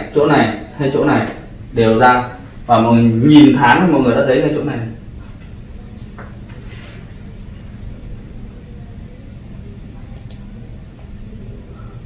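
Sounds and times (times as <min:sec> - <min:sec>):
low room rumble: 0:00.0 - 0:12.0
faint clicks: 0:10.2 - 0:11.2.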